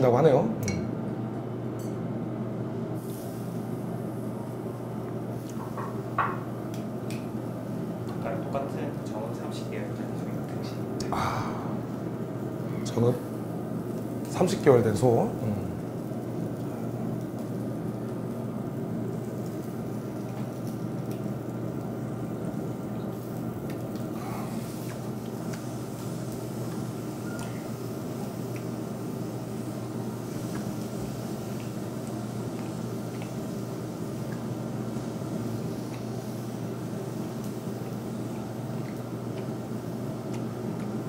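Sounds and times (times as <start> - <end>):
restaurant background hum: 0.0 - 41.0
beef sizzling on a grill: 3.0 - 4.6, 11.5 - 41.0.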